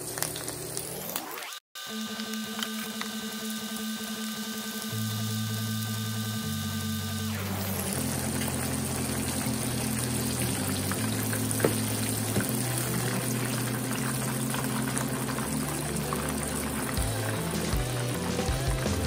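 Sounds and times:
shrimp deep-frying sizzle: 0:04.8 - 0:19.0.

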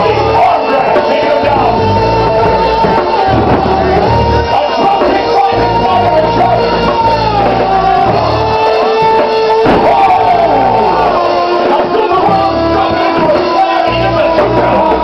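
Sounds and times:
loud music with singing: 0:00.0 - 0:15.0
thump: 0:09.0 - 0:10.0.

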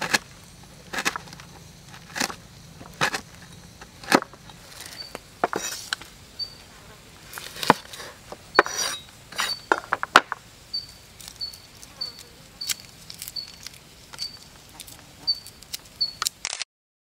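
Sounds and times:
garlic peeling crackles: 0:11.0 - 0:16.6.

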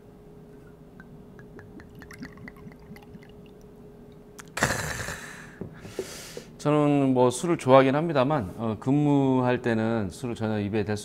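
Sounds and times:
liquid glugging into a glass: 0:00.6 - 0:03.7.

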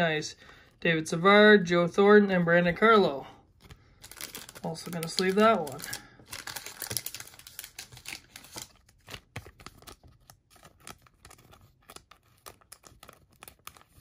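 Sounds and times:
plastic sleeve crinkling: 0:03.5 - 0:14.0.

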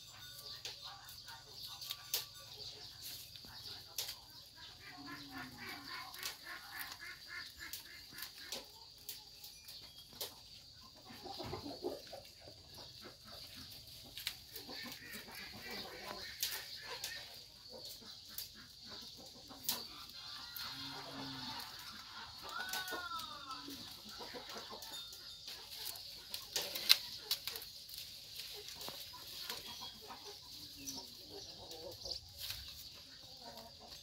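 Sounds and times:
chicken clucking: 0:00.0 - 0:34.0
goats chewing leaves: 0:00.0 - 0:34.0
leaves rustling: 0:01.6 - 0:10.4, 0:11.8 - 0:18.5, 0:19.6 - 0:34.0
stems snapping: 0:03.9 - 0:04.2, 0:25.8 - 0:29.6.

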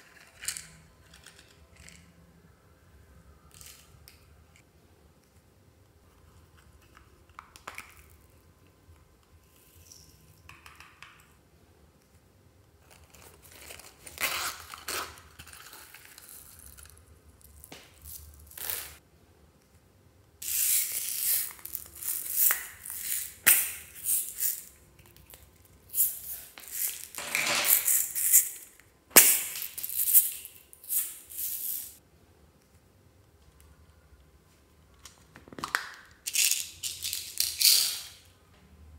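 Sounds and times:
beads rattling into glass dish: 0:25.9 - 0:28.7, 0:29.3 - 0:32.0.

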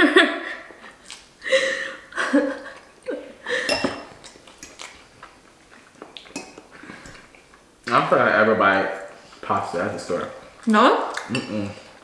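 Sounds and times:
forks clinking on ceramic bowls: 0:03.7 - 0:04.0
mouth sounds of eating: 0:10.3 - 0:12.0.

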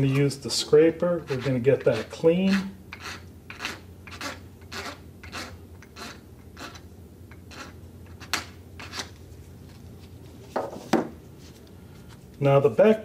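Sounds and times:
scraper scratching a grater: 0:01.2 - 0:09.1.

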